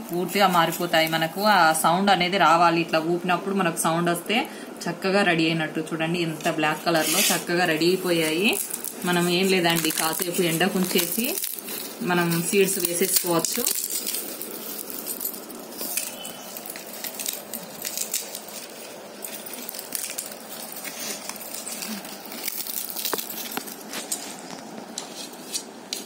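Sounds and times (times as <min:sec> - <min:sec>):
dried gourd crackling: 0:00.0 - 0:02.4, 0:06.3 - 0:26.0
seeds clicking on concrete floor: 0:07.9 - 0:26.0.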